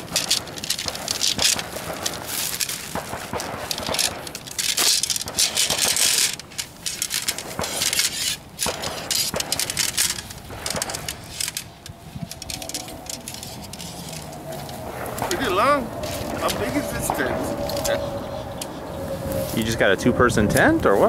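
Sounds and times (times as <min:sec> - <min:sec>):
tent fabric rustling: 0:00.0 - 0:17.9
tent poles clicking and knocking: 0:00.0 - 0:18.0.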